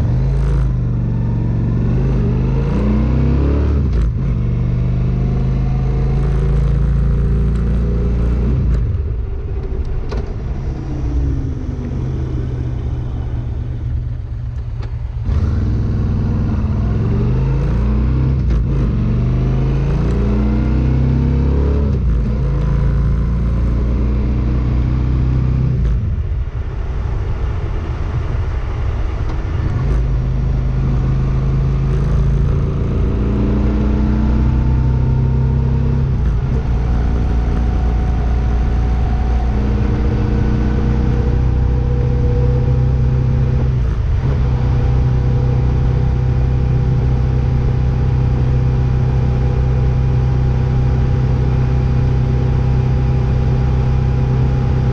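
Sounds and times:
vehicle engine running: 0:03.9 - 0:54.9.

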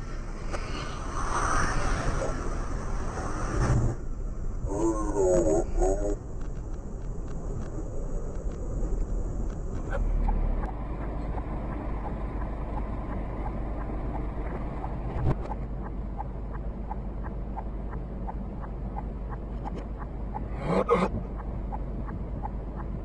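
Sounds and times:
engine and road rumble: 0:00.0 - 0:23.0
faint regular ticking: 0:06.2 - 0:20.5.

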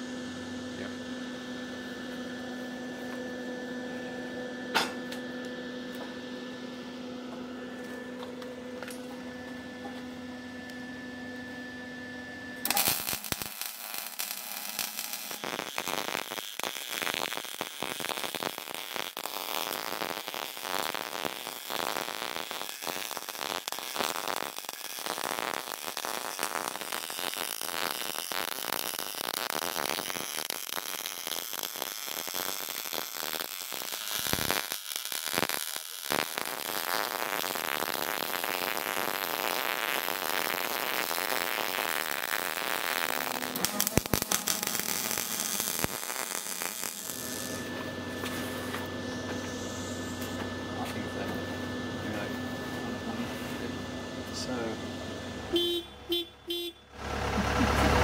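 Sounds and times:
steady hum: 0:00.0 - 0:58.0
welding arc crackling: 0:12.6 - 0:48.9, 0:55.5 - 0:58.0.

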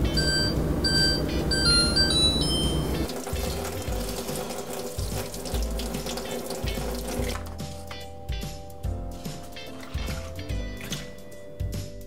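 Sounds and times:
short electronic beeps: 0:00.0 - 0:03.1.

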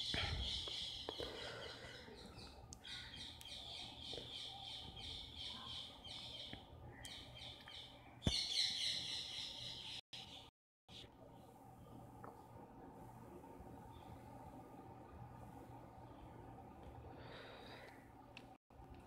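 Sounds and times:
birds chirping: 0:00.0 - 0:12.0.

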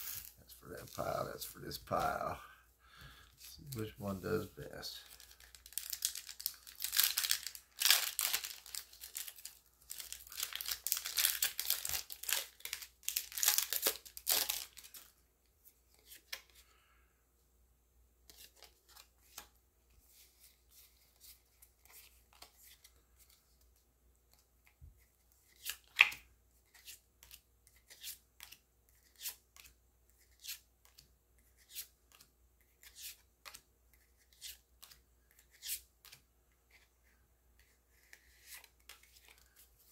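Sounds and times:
foil wrapper crinkling and tearing: 0:05.0 - 0:15.1.

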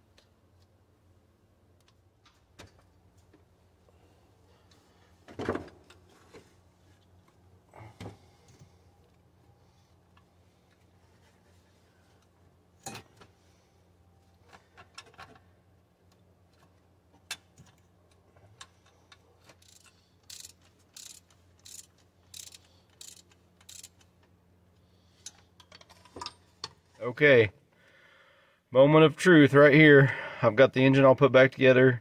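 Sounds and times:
hand ratchet clicking: 0:18.6 - 0:24.1
metal parts clinking: 0:18.8 - 0:24.1.

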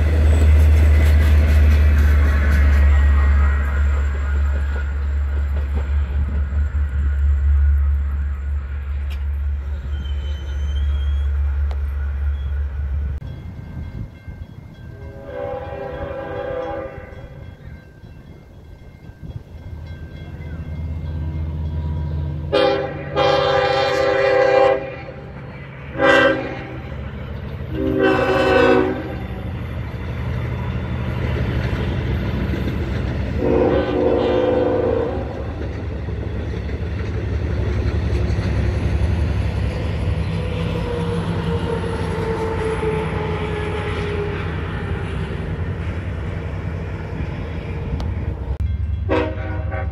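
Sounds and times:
train horn blasts: 0:14.9 - 0:17.4, 0:22.5 - 0:25.3, 0:25.9 - 0:27.0, 0:27.7 - 0:29.5, 0:33.4 - 0:35.5, 0:49.0 - 0:49.9.

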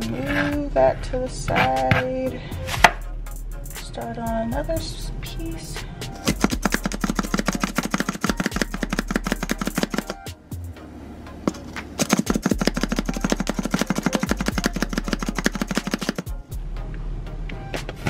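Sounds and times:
hand chopper blades clacking: 0:06.3 - 0:10.3, 0:11.5 - 0:16.3.

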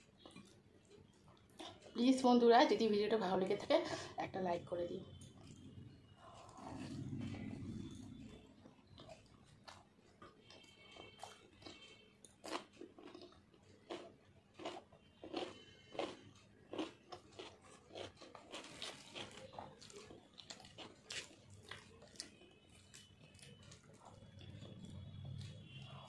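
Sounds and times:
cucumber crunching: 0:10.4 - 0:26.0.

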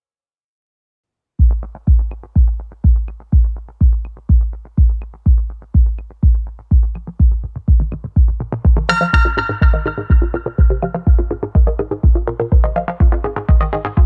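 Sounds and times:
electronic dance music: 0:01.5 - 0:14.0.

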